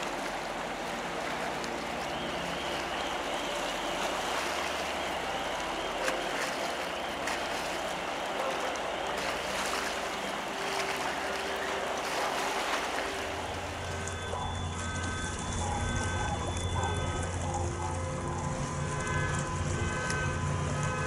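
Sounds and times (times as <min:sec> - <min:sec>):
churning water rushing: 0:00.0 - 0:21.0.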